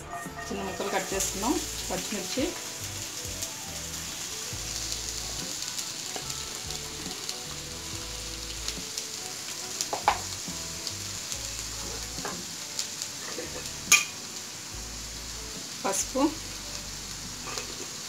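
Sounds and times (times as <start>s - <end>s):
onions sizzling in oil: 0.0s - 18.0s.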